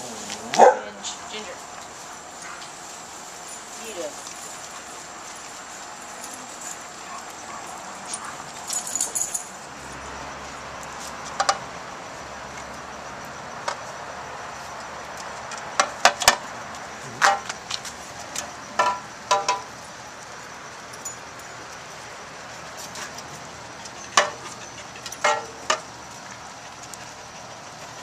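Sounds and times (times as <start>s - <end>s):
steady hiss: 0.0s - 9.4s.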